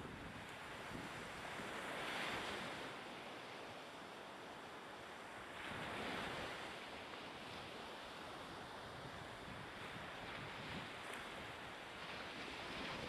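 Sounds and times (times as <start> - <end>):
wind: 0.0 - 13.0.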